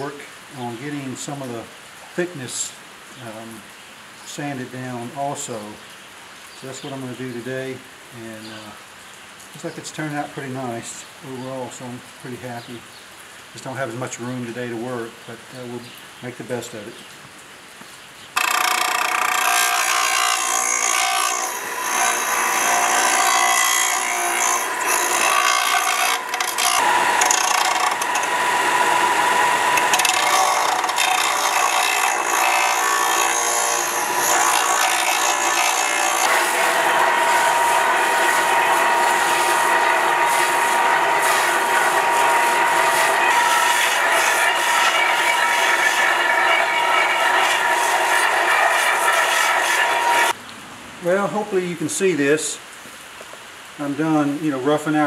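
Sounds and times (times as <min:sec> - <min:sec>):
belt sander running: 0:18.4 - 0:50.3
wood grinding against abrasive: 0:18.4 - 0:50.4.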